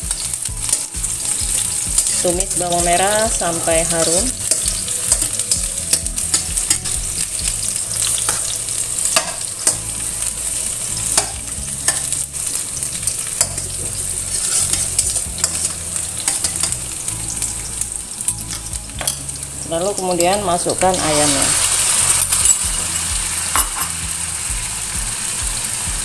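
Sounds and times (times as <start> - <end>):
shallots sizzling in oil: 0.0 - 26.0
metal spatula scraping pan: 0.2 - 2.6, 3.4 - 17.4.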